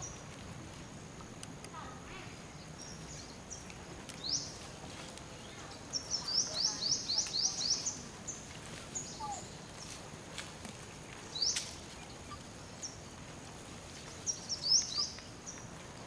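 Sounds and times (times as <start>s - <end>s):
bird chirping: 1.8s - 10.0s, 11.0s - 13.2s, 14.0s - 15.8s.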